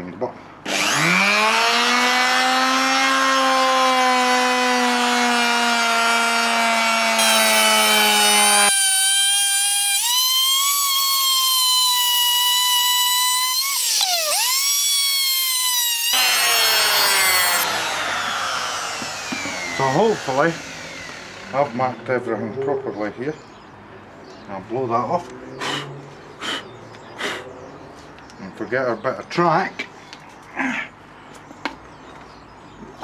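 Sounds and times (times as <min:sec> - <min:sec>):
electric router cutting board: 0:00.7 - 0:22.1.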